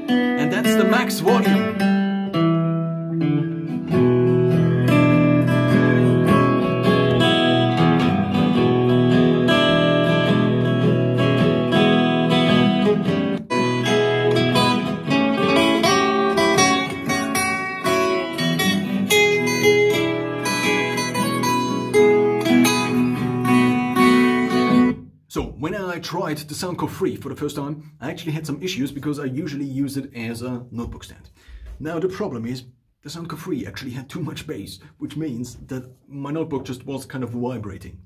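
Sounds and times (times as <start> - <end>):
blues guitar music from speaker: 0.0 - 25.0.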